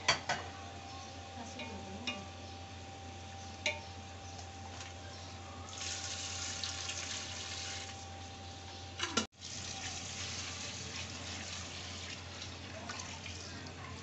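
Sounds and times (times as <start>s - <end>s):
water pouring into a pot: 5.7s - 8.0s, 9.4s - 14.0s.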